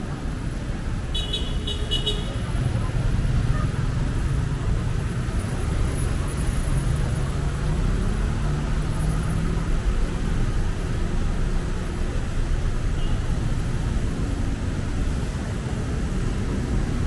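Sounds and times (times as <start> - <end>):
car engines running close by: 0.0 - 17.0
city traffic rumble: 0.0 - 17.0.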